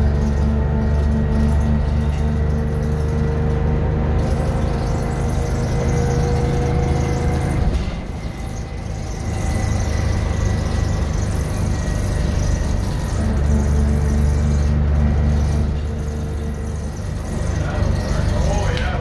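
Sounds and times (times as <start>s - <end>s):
bus diesel engine pulling: 0.0s - 19.0s
steady whine: 0.0s - 19.0s.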